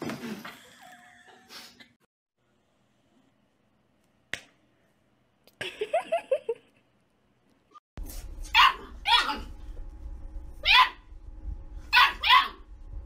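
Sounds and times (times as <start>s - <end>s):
dog barking: 8.6s - 9.5s, 10.6s - 11.0s, 11.9s - 12.6s.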